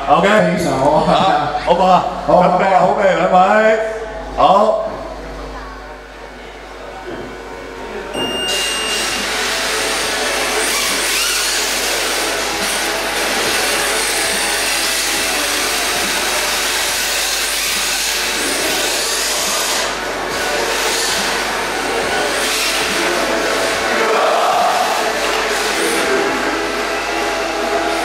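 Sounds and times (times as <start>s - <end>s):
short steady beep: 8.1s - 9.3s
rc cars drifting: 9.4s - 28.0s.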